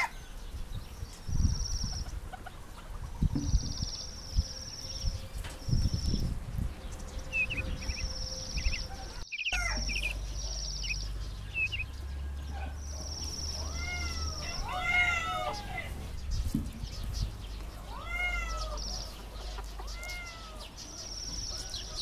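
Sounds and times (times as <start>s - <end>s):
high trills and chirps: 3.5s - 17.6s.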